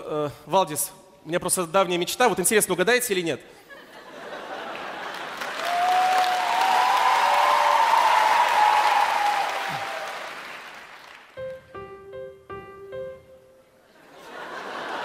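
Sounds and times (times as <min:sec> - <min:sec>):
audience applauding: 0:04.6 - 0:11.4.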